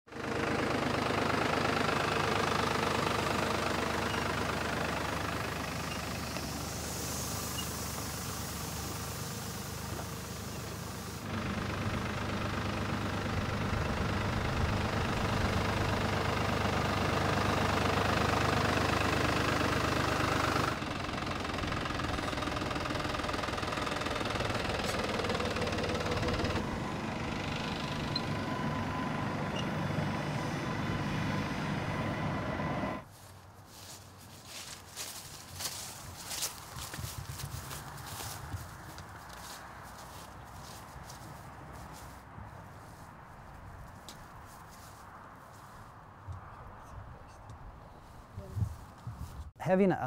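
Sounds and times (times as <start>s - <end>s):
tractor engine running: 0.1s - 49.6s
spray hissing: 5.6s - 11.3s.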